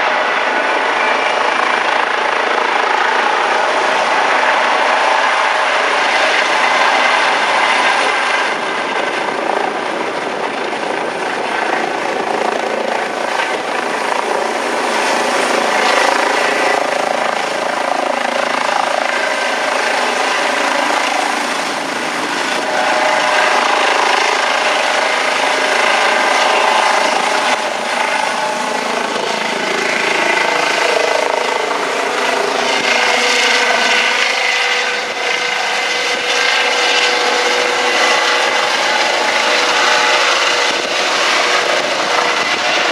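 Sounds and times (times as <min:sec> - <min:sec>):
helicopter rotor and turbine noise: 0:00.0 - 0:42.9
thin high turbine whine: 0:00.0 - 0:42.9.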